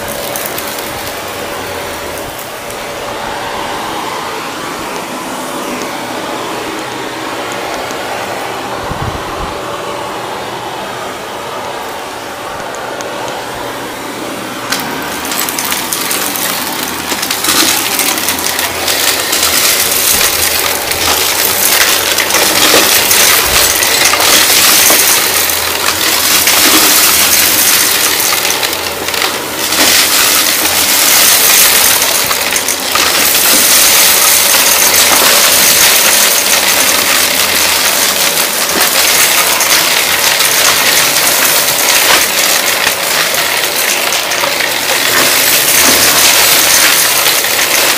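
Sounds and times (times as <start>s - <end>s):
debris crackling: 0.0s - 3.0s, 14.7s - 47.9s
vacuum rushing hiss: 0.0s - 38.8s
vacuum cleaner motor whine: 0.0s - 47.9s.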